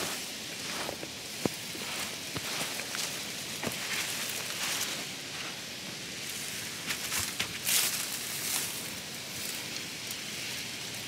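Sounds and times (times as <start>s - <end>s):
flip-flop footsteps on sand: 0.0s - 6.0s
shrubs rustling: 0.0s - 9.8s
steady hiss: 0.0s - 11.0s.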